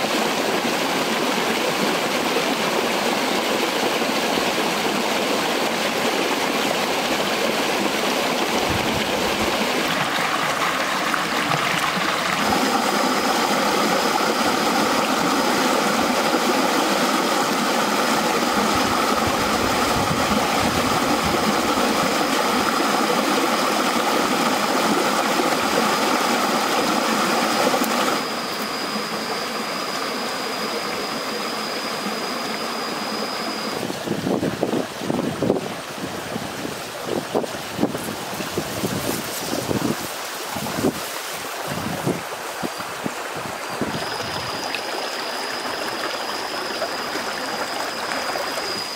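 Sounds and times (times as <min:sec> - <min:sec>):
water flowing over stones: 0:00.0 - 0:48.9
thin high tone: 0:08.5 - 0:34.0, 0:42.5 - 0:48.9.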